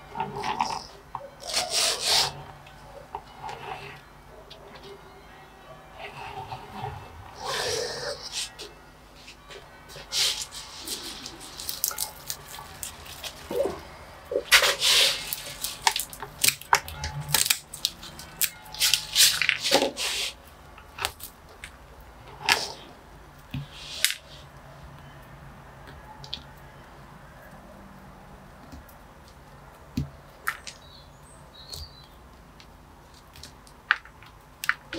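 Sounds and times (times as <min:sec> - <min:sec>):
leaves and soil rustling: 0:06.1 - 0:21.4.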